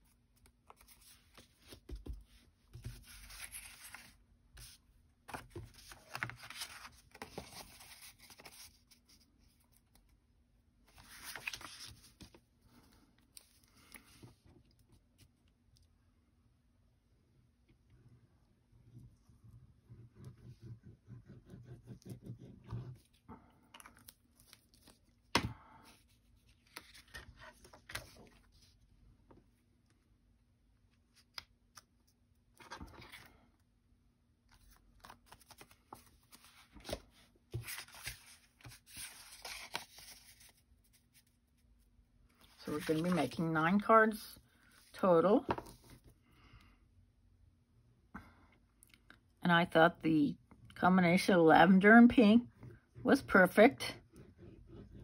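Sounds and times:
paper rustling: 0.4 - 9.7, 10.9 - 14.4, 26.0 - 28.7, 34.5 - 41.3, 42.4 - 43.5.

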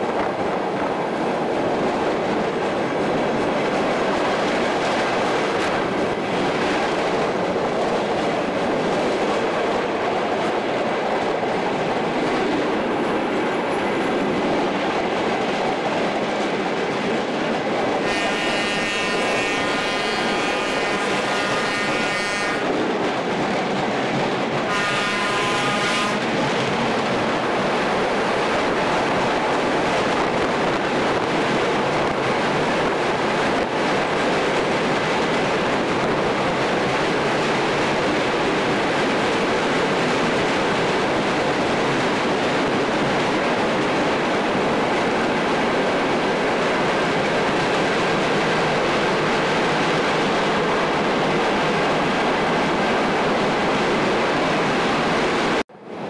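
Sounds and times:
train wheels rolling on rails: 0.0 - 56.0
train horn blasts: 18.0 - 22.7, 24.6 - 26.2.

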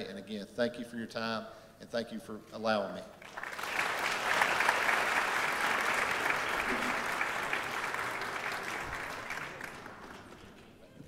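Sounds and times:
audience applauding: 3.2 - 10.8.

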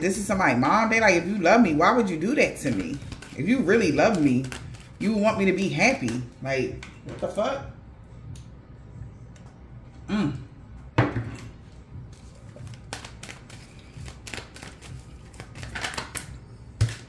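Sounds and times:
cards clicking and tapping: 12.6 - 17.0.

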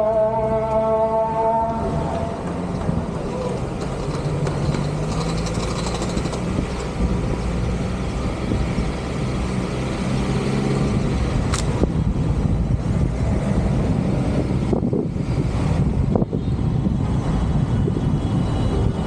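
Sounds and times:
road noise: 0.0 - 19.0
vehicle engine running: 1.7 - 16.2
sharp click: 11.5 - 11.8.

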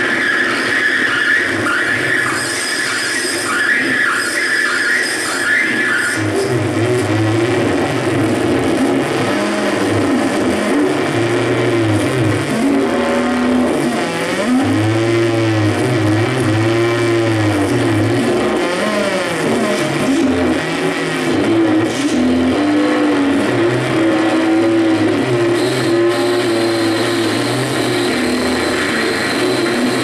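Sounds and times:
low buzzing drone: 5.0 - 30.0
wavering electronic tone: 23.9 - 30.0.

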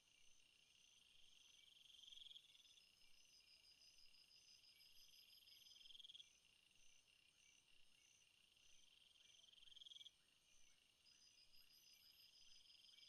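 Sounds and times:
crickets chirping: 0.1 - 13.0.

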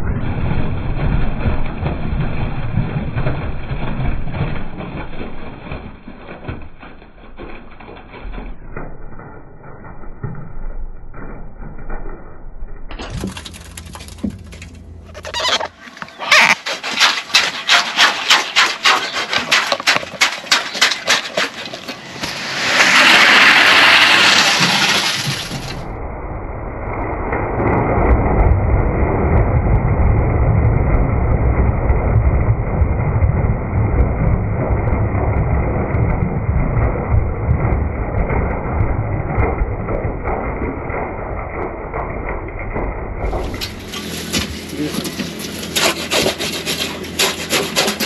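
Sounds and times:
wet concrete pouring rumble: 0.0 - 48.0.

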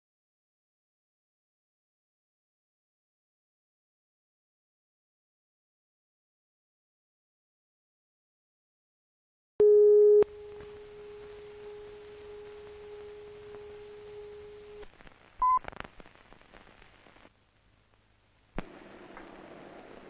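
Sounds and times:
short high sync beep: 9.6 - 14.8
steady test tone: 9.6 - 14.8
faint high whine: 10.2 - 15.7
film soundtrack crackles: 10.2 - 20.0.

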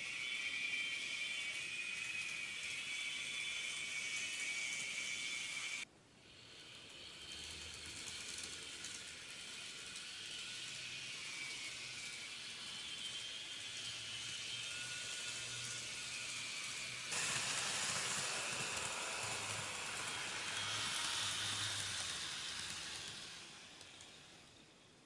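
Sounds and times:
model train running on track: 0.0 - 25.0.

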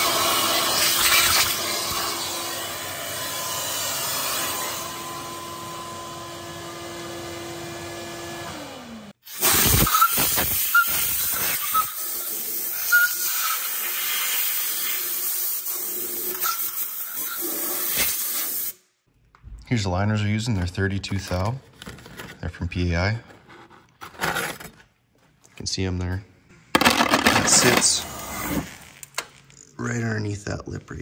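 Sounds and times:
compressed air hissing: 9.3 - 18.8.

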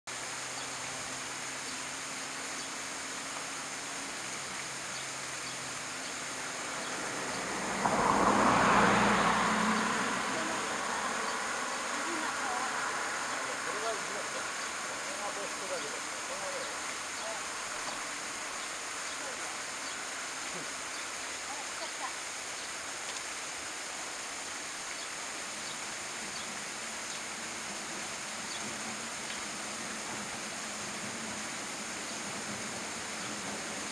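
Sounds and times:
steady outdoor hiss: 0.1 - 33.9
vehicle passing: 1.1 - 22.4.

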